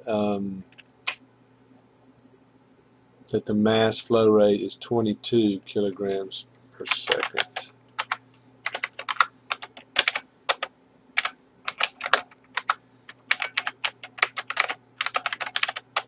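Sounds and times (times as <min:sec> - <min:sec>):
typing on a keyboard: 0:06.9 - 0:16.0.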